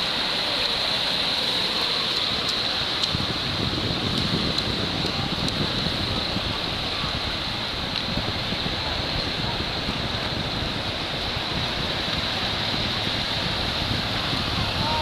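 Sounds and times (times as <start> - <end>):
small waves washing ashore: 0.0 - 15.0
wind on microphone: 2.0 - 15.0.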